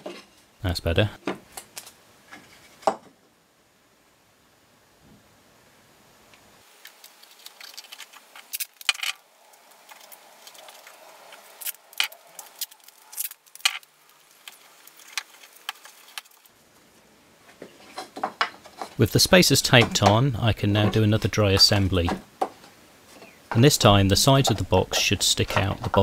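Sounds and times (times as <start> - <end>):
masking tape rustling: 6.7 - 26.0
wooden pieces clicking and knocking: 6.8 - 16.5, 17.6 - 22.8, 23.5 - 26.0.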